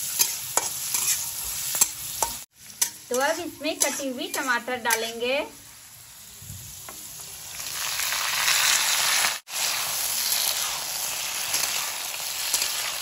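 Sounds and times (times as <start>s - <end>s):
tomatoes sizzling in hot oil: 0.0s - 13.0s.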